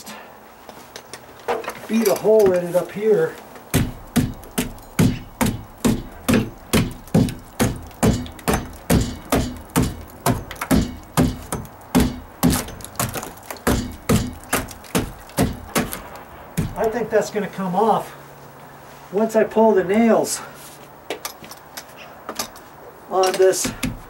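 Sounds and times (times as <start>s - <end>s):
hammer striking rotten wood: 3.7s - 17.1s, 23.4s - 24.0s.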